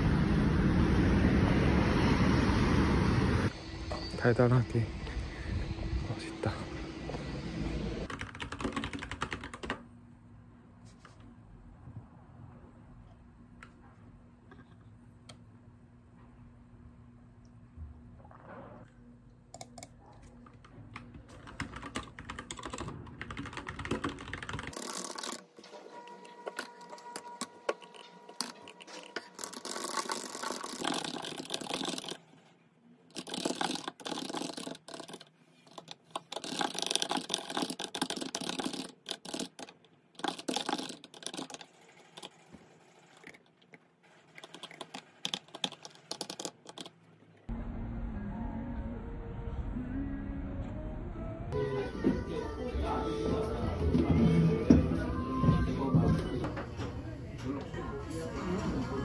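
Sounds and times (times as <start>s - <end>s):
typing on computer keyboard: 8.1s - 9.8s, 19.6s - 25.4s, 26.6s - 32.2s, 33.1s - 42.5s, 44.4s - 47.0s.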